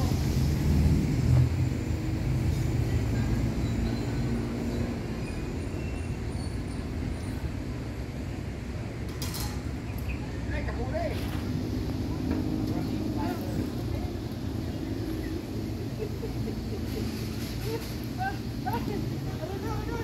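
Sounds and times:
diesel engine rumbling: 0.0s - 20.0s.

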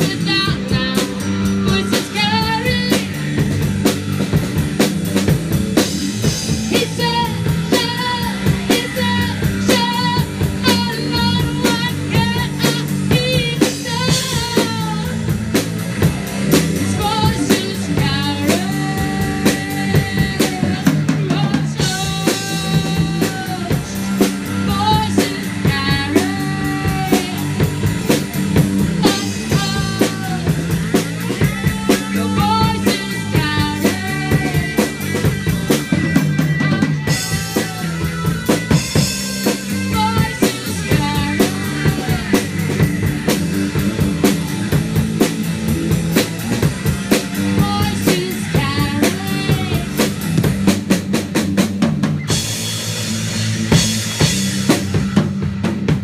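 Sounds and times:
woman singing: 0.0s - 3.4s, 6.2s - 15.4s, 16.8s - 27.9s, 28.6s - 35.8s, 36.4s - 43.1s, 47.1s - 50.3s
drum kit beat: 0.0s - 56.0s
electric guitar: 0.0s - 56.0s.

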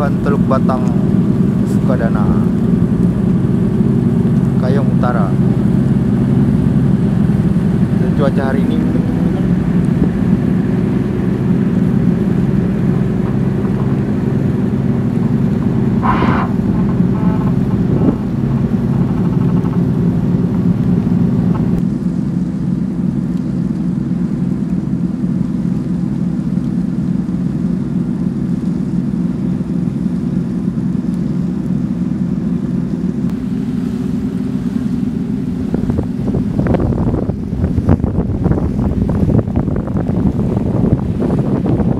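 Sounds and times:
ferry engine droning: 0.0s - 41.9s
wind on microphone: 0.8s - 21.8s, 35.4s - 41.9s.

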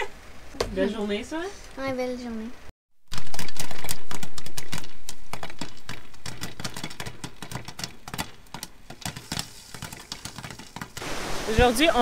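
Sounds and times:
popcorn popping: 3.1s - 11.1s
hiss: 11.0s - 12.0s.

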